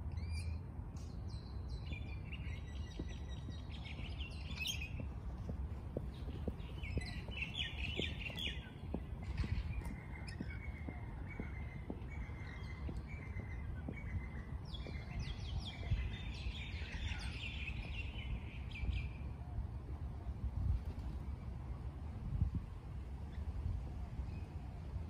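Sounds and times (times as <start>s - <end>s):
steady low rumble: 0.7s - 23.2s
shrill bird calls: 1.7s - 19.1s
lorikeets chattering: 6.0s - 18.4s.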